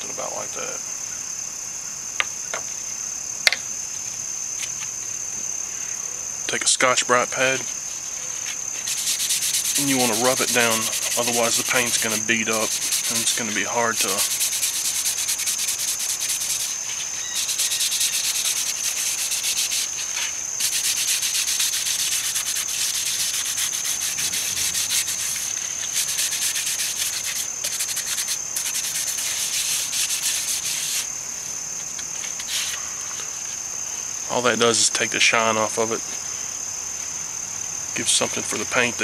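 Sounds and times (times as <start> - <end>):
high insect trill: 0.0 - 39.0
scouring pad scrubbing plastic: 8.8 - 31.1.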